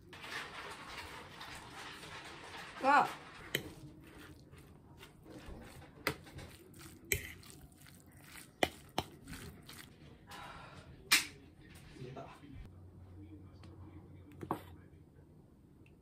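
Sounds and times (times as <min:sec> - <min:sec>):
food squishing: 0:00.0 - 0:10.3.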